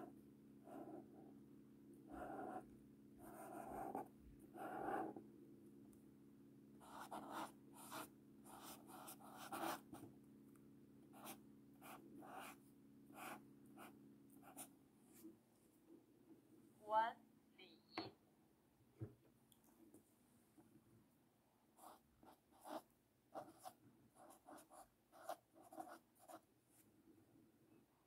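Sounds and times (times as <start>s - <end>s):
marker scratching on paper: 2.1s - 5.2s, 6.8s - 10.0s, 11.2s - 14.7s, 21.8s - 26.4s.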